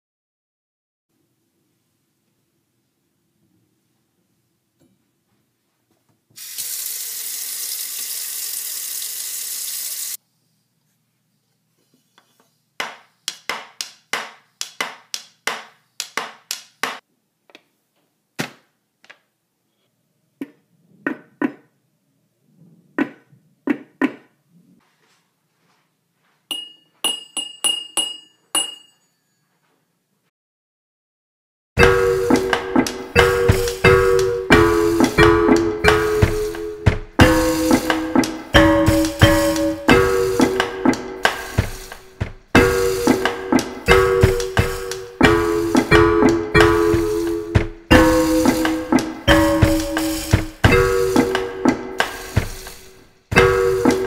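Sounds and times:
faucet running into steel sink: 6.4 - 10.2
fork clinking glass jars: 26.5 - 29.2.

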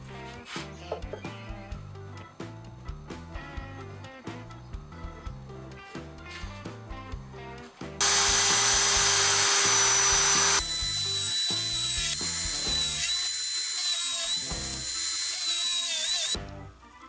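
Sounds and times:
electric drill boring into wood: 8.0 - 16.4.

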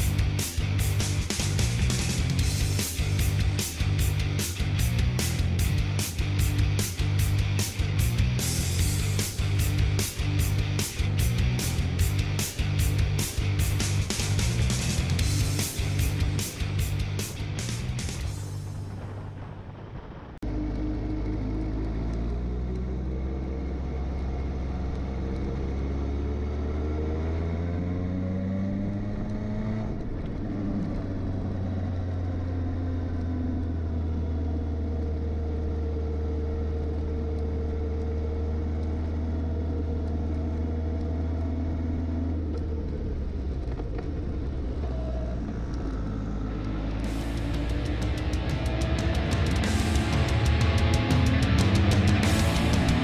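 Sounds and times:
motorcycle engine accelerating: 0.0 - 53.0.

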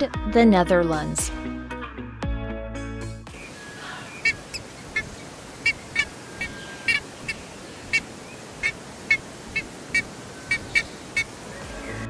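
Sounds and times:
bird calling sharply: 3.3 - 12.0
faint background hiss: 3.3 - 12.0.

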